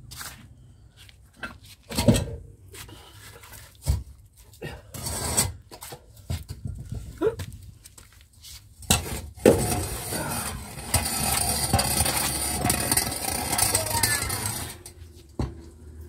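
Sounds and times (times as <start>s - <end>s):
steel scraping on brick: 4.9s - 5.8s, 8.8s - 15.4s.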